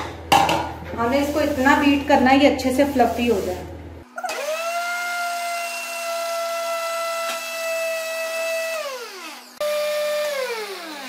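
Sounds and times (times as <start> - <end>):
blender motor whining: 4.0 - 11.0.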